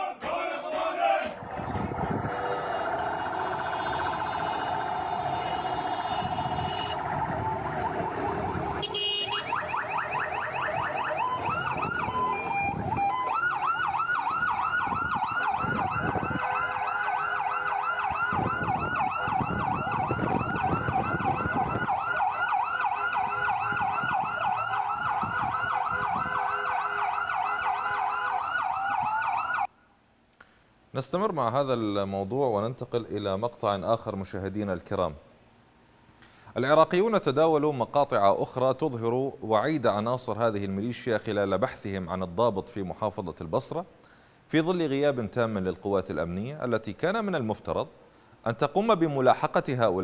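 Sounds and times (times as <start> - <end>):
low rumble of vehicles: 1.4 - 29.6
electronic sirens yelping: 1.4 - 29.7.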